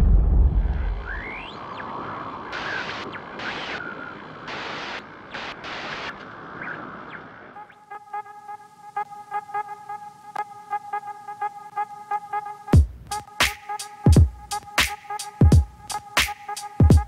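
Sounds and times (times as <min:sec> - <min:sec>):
deep boom: 0:00.0 - 0:01.5
steady rushing noise: 0:00.0 - 0:07.6
thin rising whistles: 0:00.8 - 0:04.2
glitchy static bursts: 0:00.8 - 0:07.7.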